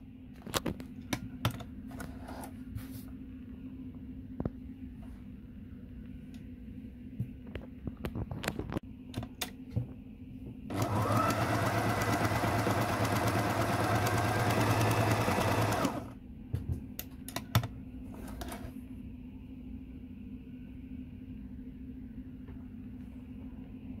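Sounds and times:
sewing machine motor running: 10.7 - 16.1.

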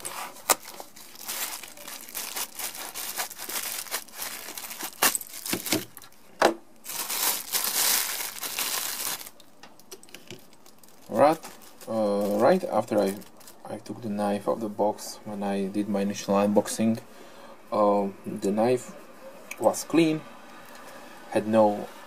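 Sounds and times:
plastic bag crinkling: 0.0 - 6.2, 6.8 - 9.4, 10.0 - 13.7.

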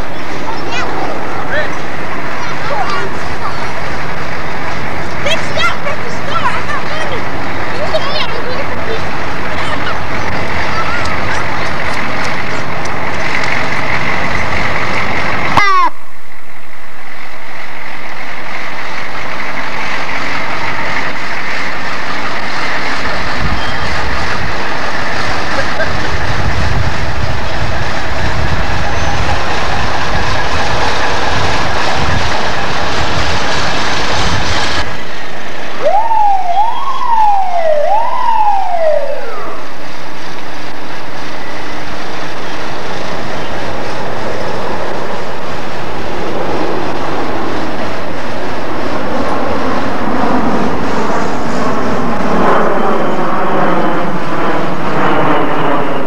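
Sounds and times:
emergency vehicle engines running: 0.0 - 56.0
wind noise on microphone: 7.2 - 56.0
steady high tone: 34.8 - 41.9
emergency siren wailing: 35.7 - 42.6
short falling tone: 35.8 - 39.8.

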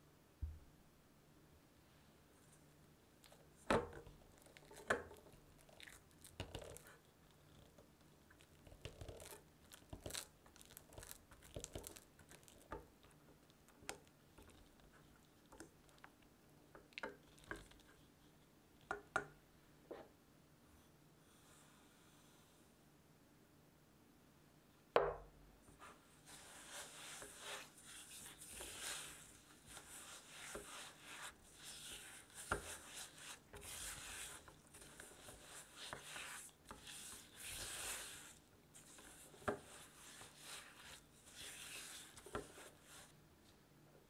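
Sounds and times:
spatula scraping a metal bowl: 26.4 - 38.4.

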